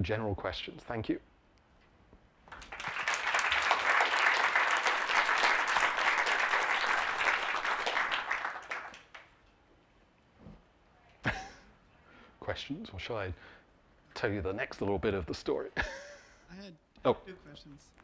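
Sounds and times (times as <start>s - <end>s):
audience applauding: 2.5s - 9.3s.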